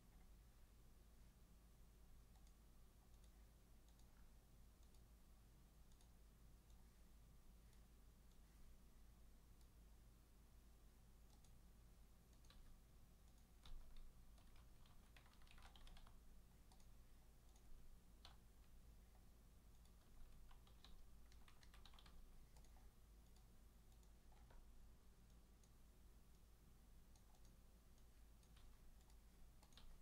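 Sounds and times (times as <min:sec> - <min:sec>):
typing on computer keyboard: 0:12.3 - 0:18.6, 0:19.7 - 0:24.7, 0:28.3 - 0:30.0.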